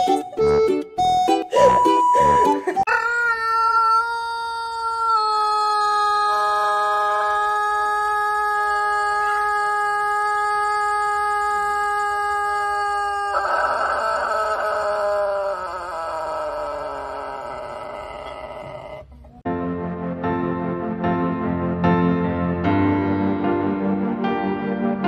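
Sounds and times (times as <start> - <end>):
rooster crowing: 2.7 - 19.4.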